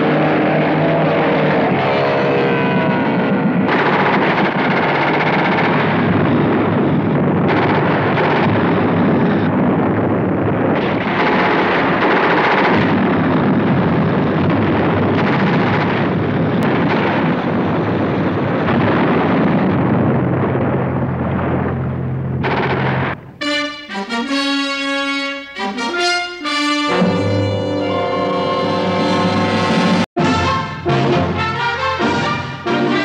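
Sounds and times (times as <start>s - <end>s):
military vehicle engines droning: 0.0s - 10.5s, 19.9s - 23.6s
explosions: 0.0s - 23.4s
gunfire: 3.4s - 23.2s.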